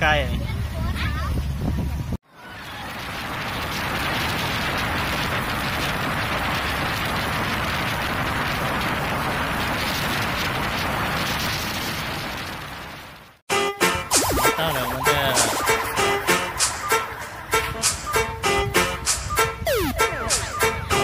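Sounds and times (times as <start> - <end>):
wind buffeting microphone: 0.0 - 13.2
wind and spray rushing: 0.4 - 13.4, 14.1 - 21.0.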